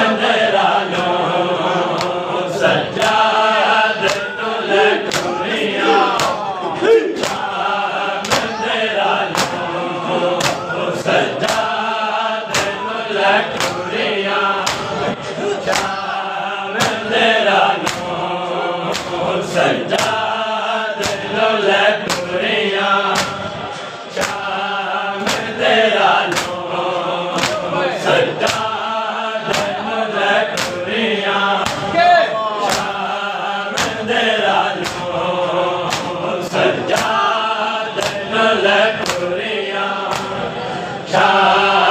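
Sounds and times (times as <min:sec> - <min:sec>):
men chanting in unison: 0:00.0 - 0:41.9
hands slapping chests: 0:01.9 - 0:02.2, 0:03.0 - 0:04.4, 0:05.0 - 0:06.6, 0:07.2 - 0:07.6, 0:08.2 - 0:09.7, 0:10.4 - 0:11.9, 0:12.5 - 0:12.8, 0:13.5 - 0:13.9, 0:14.6 - 0:16.2, 0:16.8 - 0:17.1, 0:17.7 - 0:18.2, 0:18.8 - 0:20.3, 0:21.0 - 0:21.4, 0:22.0 - 0:22.4, 0:23.1 - 0:23.6, 0:24.2 - 0:24.6, 0:25.2 - 0:26.7, 0:27.3 - 0:28.8, 0:29.4 - 0:29.8, 0:30.5 - 0:30.9, 0:31.6 - 0:32.0, 0:32.6 - 0:33.1, 0:33.7 - 0:34.1, 0:34.7 - 0:35.2, 0:35.8 - 0:37.3, 0:38.0 - 0:38.3, 0:39.0 - 0:39.3, 0:40.0 - 0:40.5.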